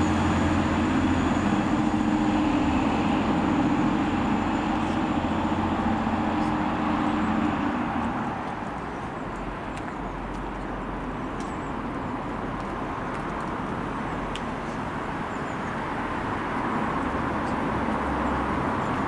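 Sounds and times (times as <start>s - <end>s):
low background rumble: 0.0s - 9.2s
train passing: 0.0s - 9.5s.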